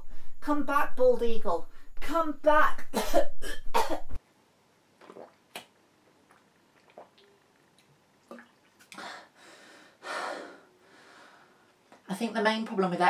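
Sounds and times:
person gulping water: 0:05.0 - 0:09.0.

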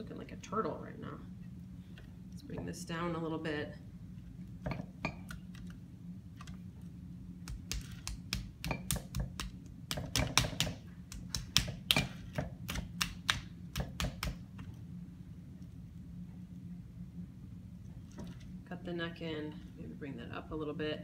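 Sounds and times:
hands slapping clay: 0:07.4 - 0:14.4.

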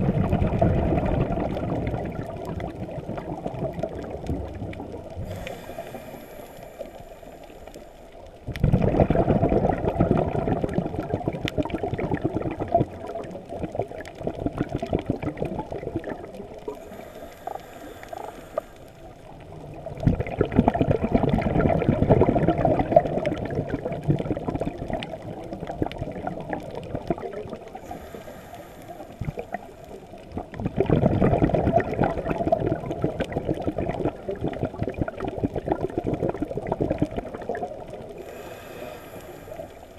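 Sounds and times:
exhaled bubbles rushing: 0:00.0 - 0:07.6, 0:08.4 - 0:28.3, 0:29.0 - 0:39.9
faint underwater crackling: 0:00.0 - 0:39.9
diver inhaling through regulator: 0:05.2 - 0:08.1, 0:16.7 - 0:19.1, 0:27.8 - 0:30.0, 0:38.2 - 0:39.9.

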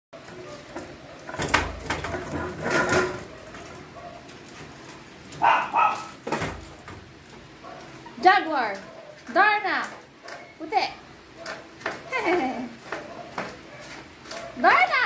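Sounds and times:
puppy yaps: 0:05.4 - 0:06.2
puppies scrabbling on plastic floor: 0:11.4 - 0:14.9.

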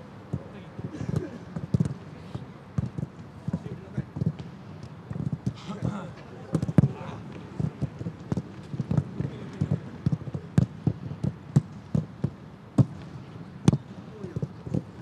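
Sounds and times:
footballs being kicked: 0:00.3 - 0:15.0.

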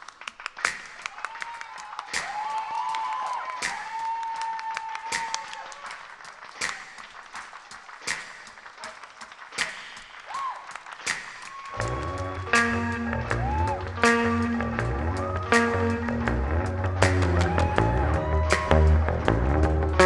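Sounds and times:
people clapping a slow beat: 0:00.0 - 0:20.0
whistled melody: 0:11.8 - 0:17.8
band playing bass and chords: 0:11.8 - 0:20.0.

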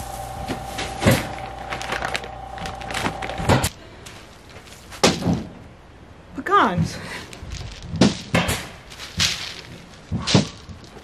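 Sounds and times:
bags rustling: 0:00.0 - 0:05.4, 0:07.2 - 0:11.0
steady low hum: 0:00.0 - 0:06.3.

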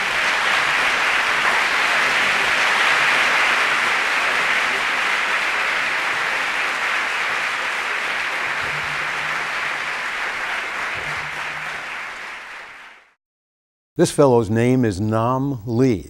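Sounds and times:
audience applauding: 0:00.0 - 0:13.2.

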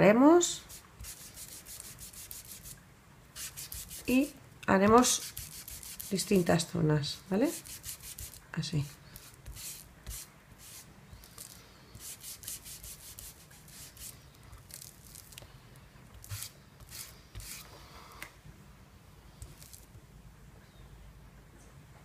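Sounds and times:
paint applicator scuffing on paper: 0:00.6 - 0:02.7, 0:03.4 - 0:06.5, 0:07.5 - 0:15.2, 0:16.2 - 0:17.7.

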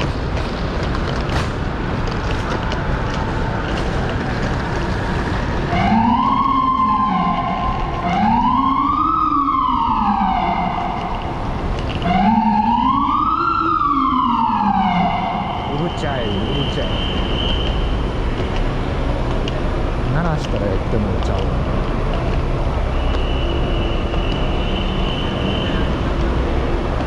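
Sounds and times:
street noise: 0:00.0 - 0:27.0
emergency vehicle siren: 0:02.8 - 0:18.2, 0:22.8 - 0:27.0.

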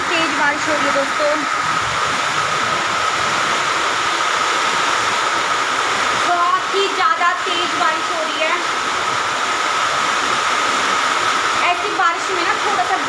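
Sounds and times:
heavy rain on a flat roof: 0:00.0 - 0:13.0.

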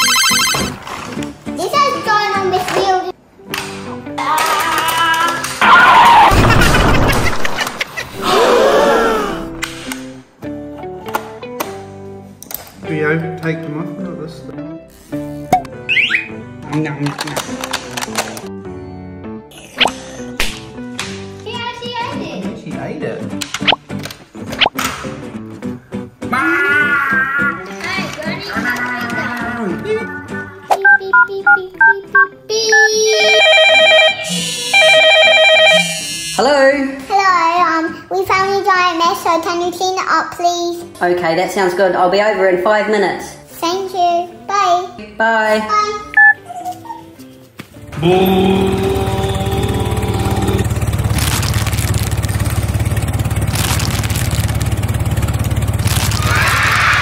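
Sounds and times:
keypad dialing beeps: 0:00.0 - 0:00.7, 0:46.2 - 0:46.4
trilling phone ring: 0:00.0 - 0:00.8, 0:33.1 - 0:36.2.

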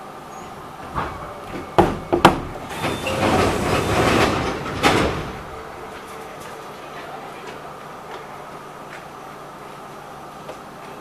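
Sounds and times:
train door hissing: 0:00.2 - 0:06.6
train door clunks: 0:00.4 - 0:08.3.

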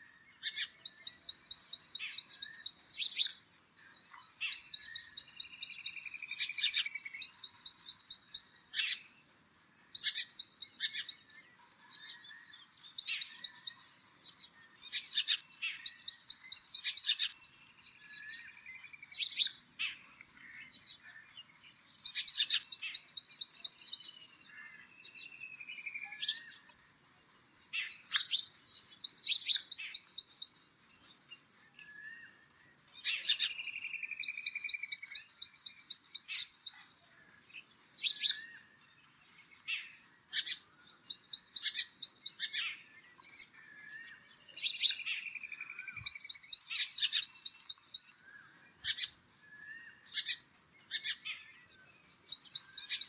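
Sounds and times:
bird trills: 0:39.5 - 0:53.0.

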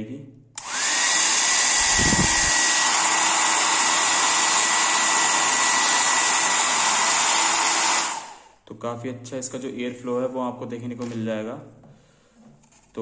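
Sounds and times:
hair dryer running: 0:00.6 - 0:08.6.

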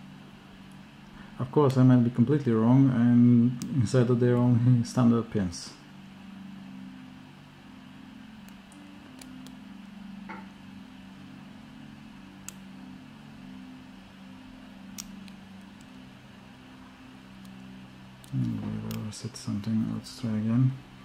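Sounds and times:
low hum: 0:00.0 - 0:21.0
lock pick metallic clicks: 0:14.9 - 0:15.9.

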